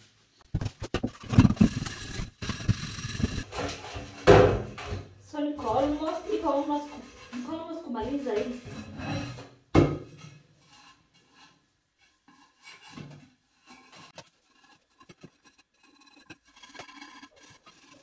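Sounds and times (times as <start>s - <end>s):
steel wool scouring a pan: 5.3s - 9.5s, 10.1s - 18.0s.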